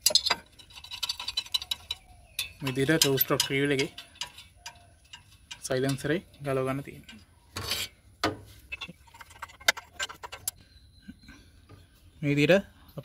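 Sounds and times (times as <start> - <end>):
spanner clicking on metal nuts: 0.0 - 7.9
metal scrape: 0.0 - 10.6.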